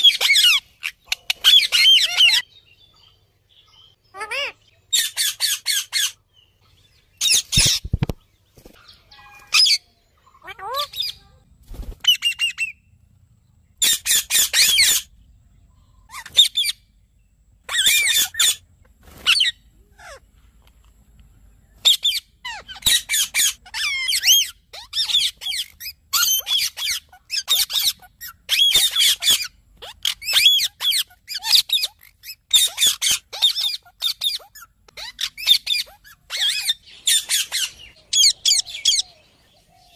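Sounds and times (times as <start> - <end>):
parakeets squawking: 0.0 - 2.5, 4.0 - 6.2, 7.2 - 8.1, 8.9 - 12.8, 13.8 - 15.1, 16.0 - 16.8, 17.7 - 20.2, 21.8 - 39.2.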